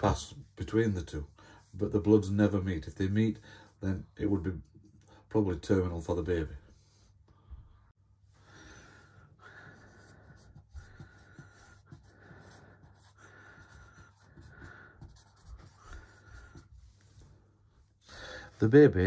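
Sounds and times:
marker scratching on whiteboard: 9.5s - 17.4s.

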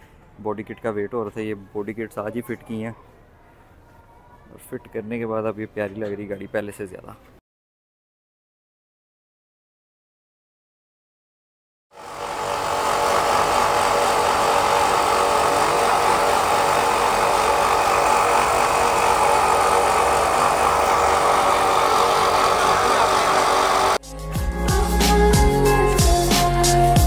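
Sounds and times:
steady hum: 12.0s - 24.0s.

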